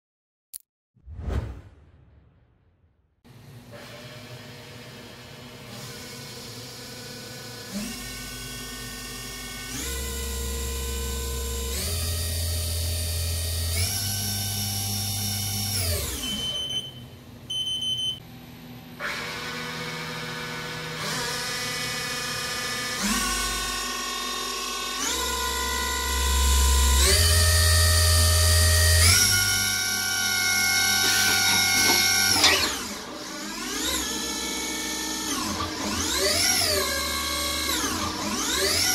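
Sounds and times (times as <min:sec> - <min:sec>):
lathe motor whine: 0:25.1 - 0:38.9.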